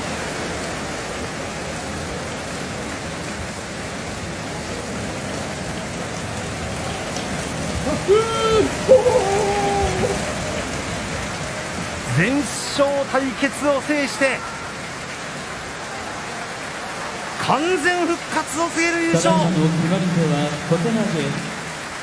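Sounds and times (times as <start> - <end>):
crowd applause: 4.2 - 22.0
man's drawn-out call: 7.8 - 10.8.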